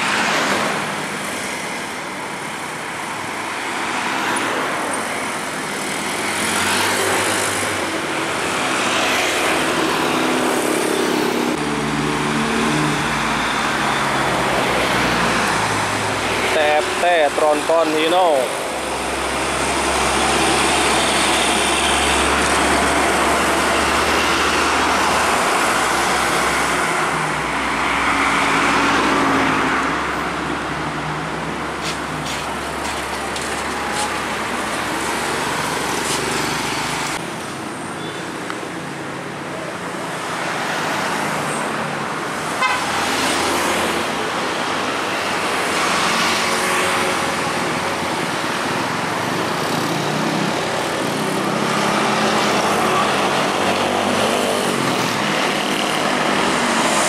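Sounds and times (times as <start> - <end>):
vehicles passing: 0.0 - 57.0
horn toots: 42.6 - 43.0.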